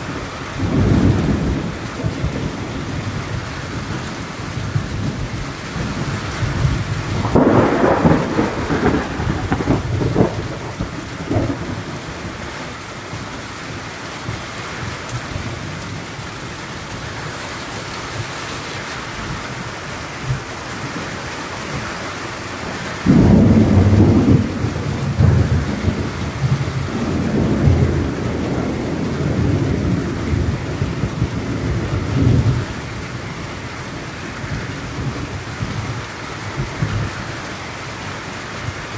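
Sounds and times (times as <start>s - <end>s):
rolling thunder: 0.0s - 12.5s, 22.9s - 37.4s
rain falling on trees: 0.0s - 38.9s.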